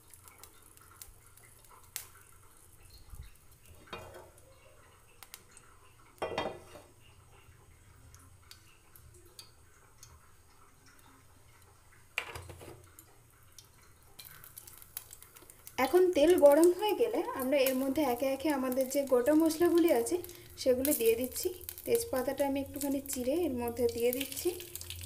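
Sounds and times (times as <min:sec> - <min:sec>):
frying pan knocking on stove: 0:03.8 - 0:04.4, 0:06.2 - 0:06.9.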